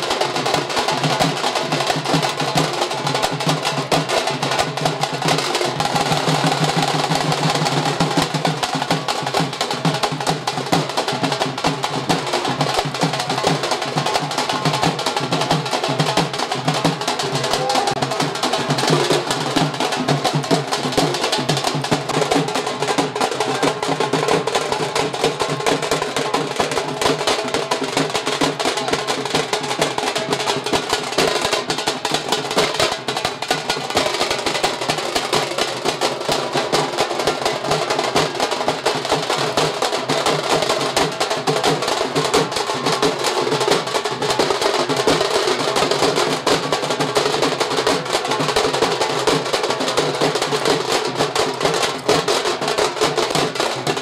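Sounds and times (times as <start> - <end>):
group of drummers drumming: 0.0 - 54.0.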